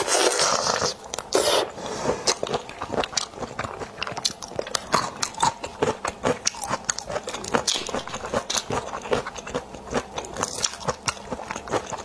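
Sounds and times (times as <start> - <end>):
wet sucking slurp: 0.0 - 2.3
crunching bites and chewing: 2.2 - 12.0.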